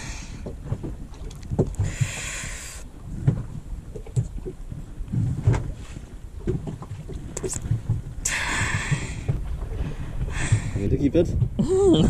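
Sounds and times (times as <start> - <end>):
water slapping against boat hull: 0.0 - 12.0
wind on microphone: 0.0 - 12.0.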